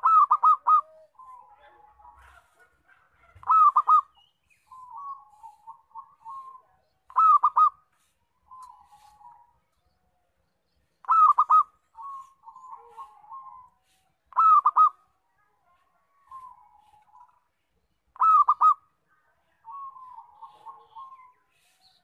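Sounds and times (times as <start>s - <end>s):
dove cooing phrase: 0.0s - 7.8s, 11.0s - 15.1s, 18.2s - 18.8s, 19.6s - 21.5s.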